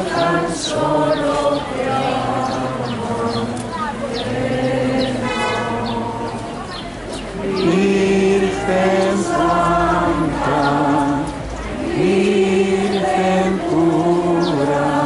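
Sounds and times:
congregation singing a hymn: 0.0 - 15.0.

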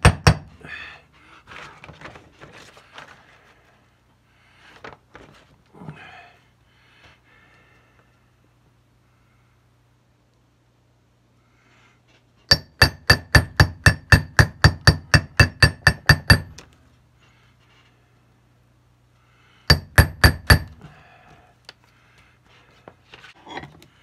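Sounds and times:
hammer striking metal punch: 0.0 - 0.5, 12.5 - 16.6, 19.7 - 20.8.

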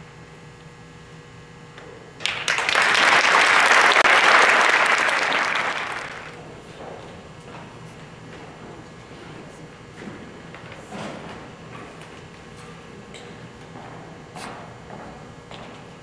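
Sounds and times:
audience applauding: 2.2 - 6.4.

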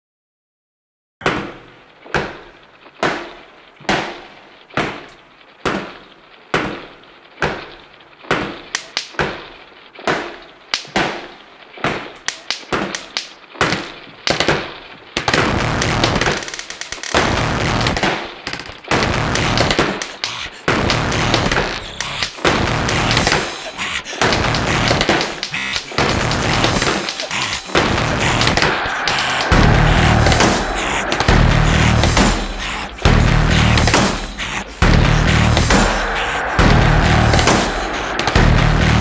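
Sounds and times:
loud dense wall of sound: 18.9 - 39.0
heavy booming hits with ringing tails: 28.1 - 39.0.

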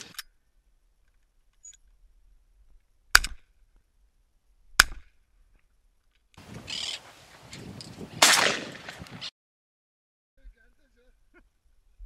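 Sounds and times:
shotgun shots: 8.2 - 9.1.

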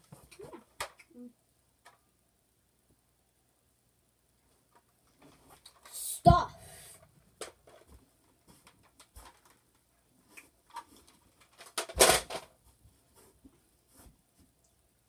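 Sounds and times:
loud plastic clatter: 10.7 - 12.6.

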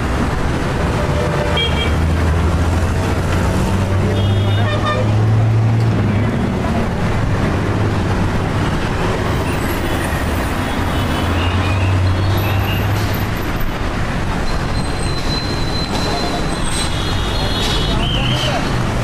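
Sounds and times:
heavy vehicle passing: 0.0 - 14.7
street traffic noise: 0.0 - 19.0.

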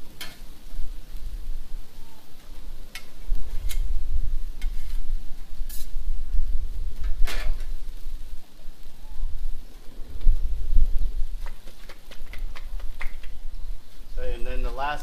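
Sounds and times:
food sizzling on griddle: 0.0 - 15.0
metal spatulas scraping griddle: 4.6 - 6.0.

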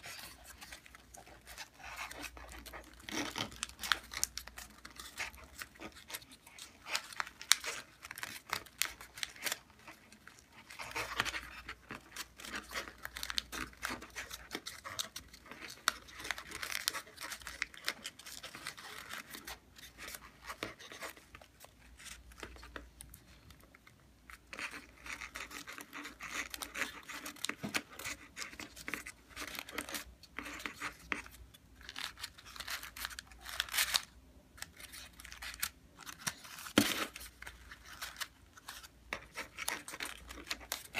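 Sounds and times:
paper rustling and crinkling: 0.0 - 40.9.

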